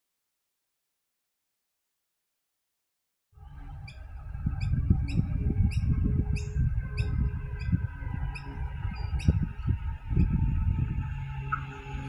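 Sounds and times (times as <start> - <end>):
loud uneven low rumble: 3.4 - 12.0.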